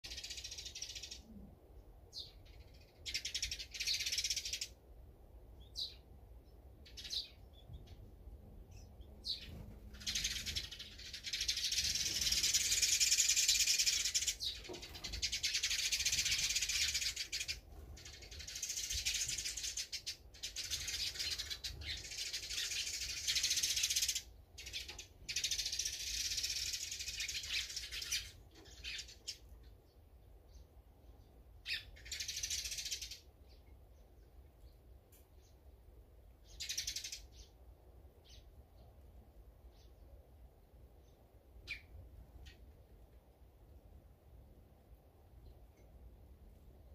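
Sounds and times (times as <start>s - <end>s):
songbirds chirping: 0.0s - 46.9s.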